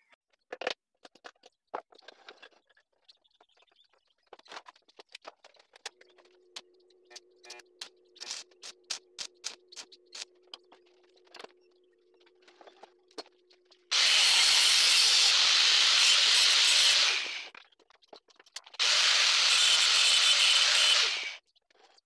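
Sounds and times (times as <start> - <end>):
angle grinder cutting steel: 13.9 - 17.5, 18.8 - 21.4.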